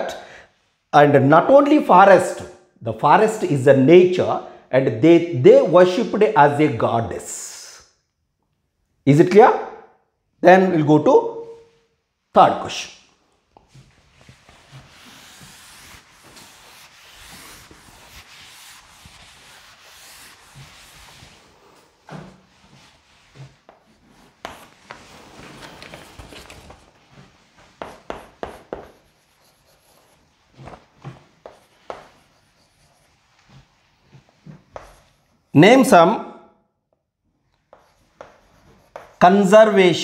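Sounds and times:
duster rubbing on chalkboard: 13.7 - 35.5, 37.7 - 39.4
chalk writing on board: 14.2 - 21.8, 22.7 - 25.2, 27.7 - 30.8, 31.4 - 35.5, 37.6 - 39.3.

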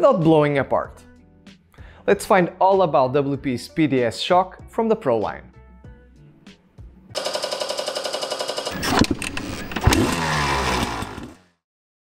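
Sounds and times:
motorcycle engine revving: 7.2 - 11.5.

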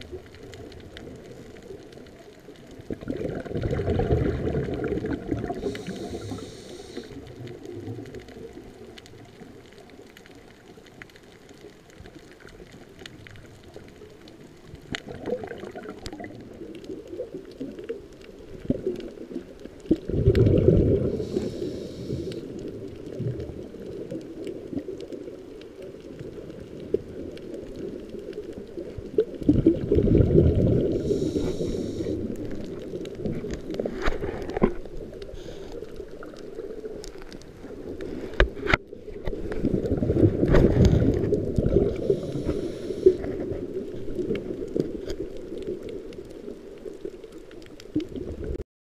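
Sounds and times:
low underwater rumble: 0.0 - 48.6
bubbling exhalations underwater: 2.8 - 6.5, 15.0 - 17.8, 18.5 - 24.9, 28.8 - 35.2, 39.4 - 46.1
regulator hiss: 5.6 - 7.3, 21.1 - 22.5, 30.9 - 32.3, 42.0 - 43.2.

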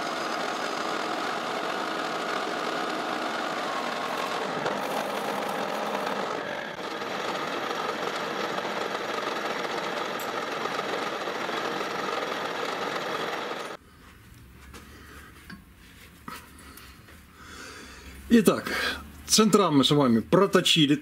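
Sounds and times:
metal lathe clattering: 0.1 - 13.8.

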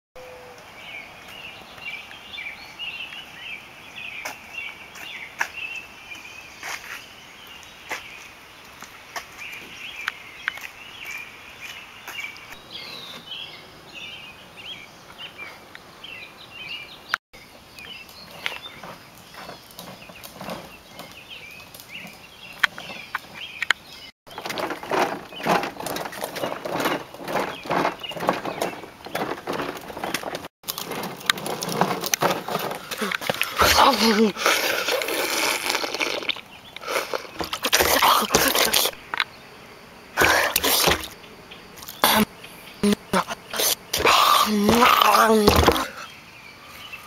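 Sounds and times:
small birds chirping: 0.2 - 47.0
footsteps on pavement: 4.1 - 5.8, 6.6 - 12.6.

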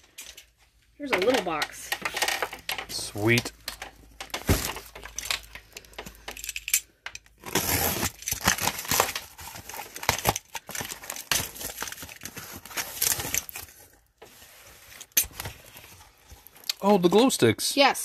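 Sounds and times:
box cutter slitting tape: 7.4 - 10.4
tape and cardboard tearing: 7.4 - 13.7.

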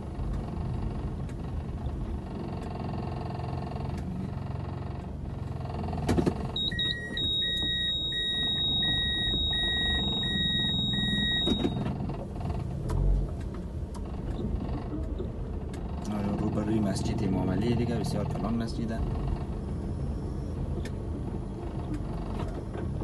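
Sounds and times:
car rumbling on dirt road: 0.0 - 23.0
steady high tone: 6.6 - 11.7
short electronic beeps: 6.6 - 11.8.

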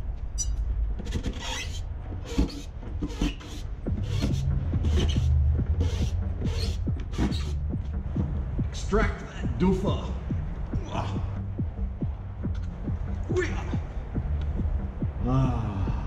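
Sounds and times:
background music with beat: 3.7 - 16.0.

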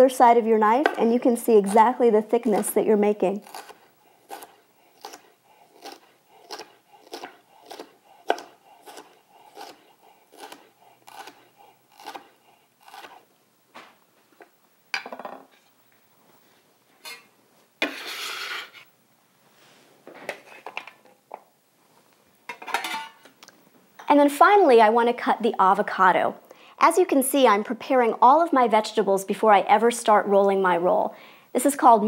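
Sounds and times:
knife scraping board: 3.4 - 13.2, 17.0 - 18.8
knife slicing on wooden board: 3.4 - 13.2.

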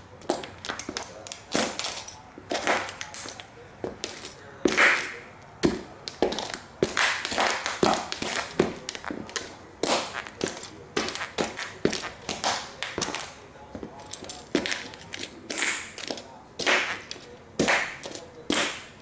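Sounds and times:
toy cars crunching underfoot: 6.0 - 19.0.

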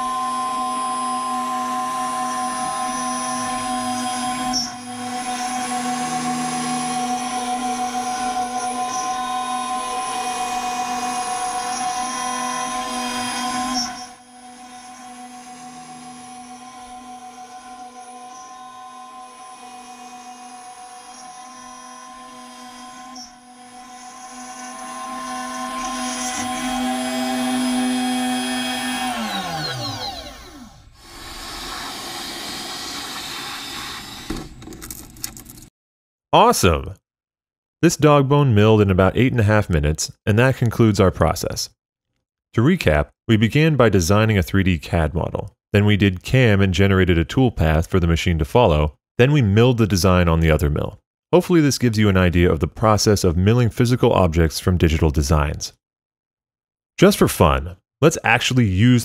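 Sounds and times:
end mill cutting metal: 0.0 - 34.5
mill spindle whining: 0.0 - 34.7.

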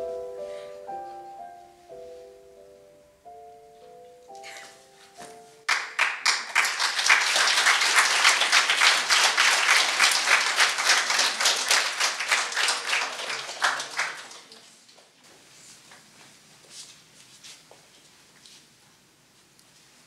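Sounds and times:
audience applause: 5.7 - 14.7.

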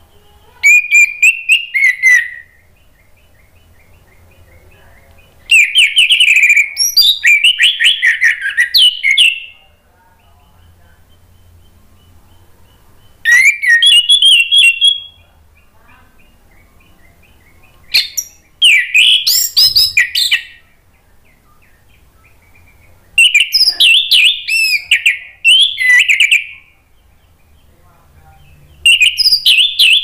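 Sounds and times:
faint bird chirps: 0.0 - 30.0
thrush whistled song: 0.7 - 2.6, 13.2 - 15.3, 23.2 - 26.8, 28.9 - 30.0.

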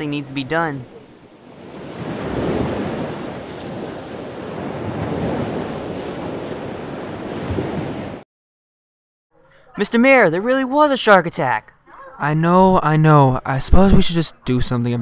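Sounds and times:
ocean surf washing: 0.0 - 8.2.

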